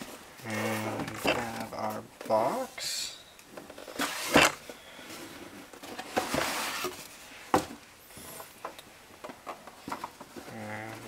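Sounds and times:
cardboard flaps scraping and rustling: 0:03.8 - 0:07.8.

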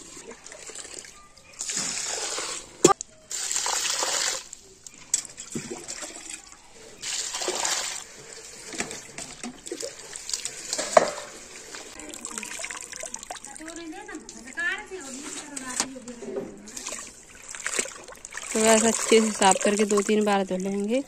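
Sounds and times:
water pouring into metal bucket: 0:00.0 - 0:15.8, 0:16.7 - 0:21.0
hand splashing wet leaves: 0:07.0 - 0:08.7, 0:16.8 - 0:20.9.

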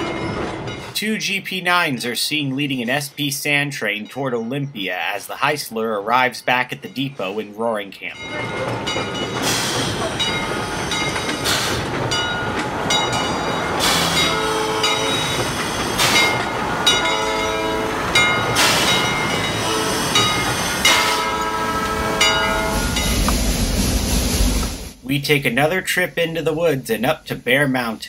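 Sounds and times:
train running noise: 0:00.0 - 0:28.0
locomotive horn blasts: 0:13.1 - 0:23.0.

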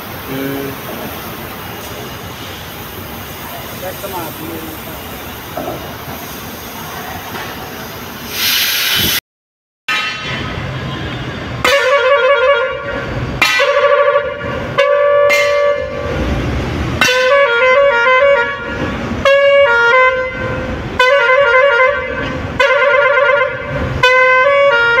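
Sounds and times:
musical air horn playing a tune: 0:11.6 - 0:16.2, 0:17.0 - 0:25.0.

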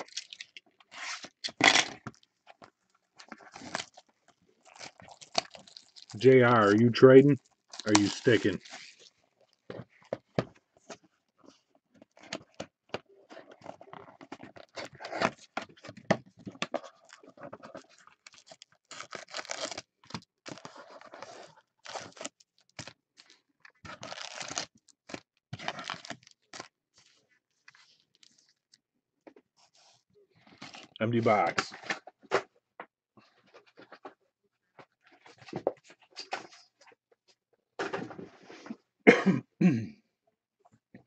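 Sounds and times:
foil wrappers rustling and crinkling: 0:00.0 - 0:10.0, 0:16.8 - 0:26.7.

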